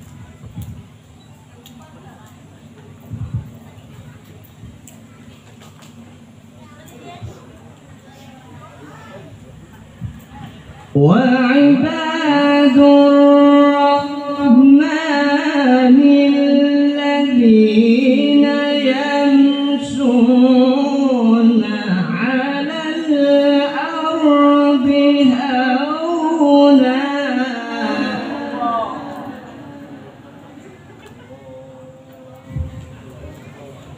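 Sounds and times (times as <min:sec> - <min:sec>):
man reciting melodically into microphone: 0:10.9 - 0:33.8.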